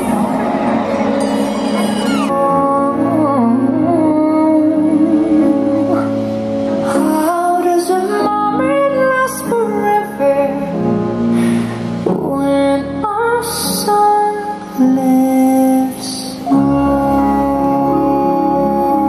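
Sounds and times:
orchestral music: 0.0 - 7.4
woman singing long notes: 12.1 - 19.0.

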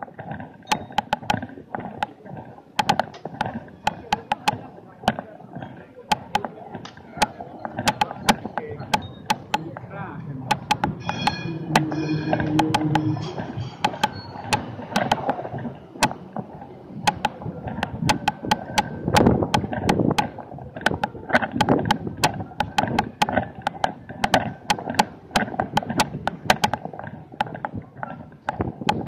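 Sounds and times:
street noise: 0.0 - 29.0
sharp clicks and taps: 0.3 - 2.2, 2.8 - 9.9, 10.5 - 29.0.

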